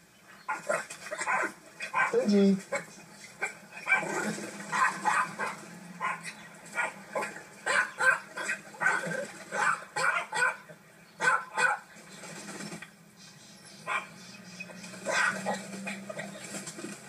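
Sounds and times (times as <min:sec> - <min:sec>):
small dog yapping: 0:03.4 - 0:10.6, 0:11.2 - 0:11.8, 0:15.0 - 0:16.0.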